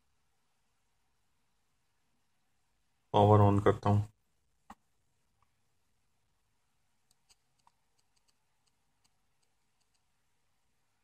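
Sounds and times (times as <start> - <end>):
faint circuit board clicks: 7.0 - 10.1.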